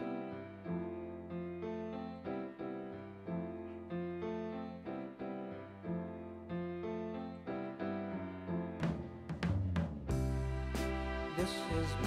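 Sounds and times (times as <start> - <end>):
piano repeated chords: 0.0 - 12.0
person singing: 11.1 - 12.0.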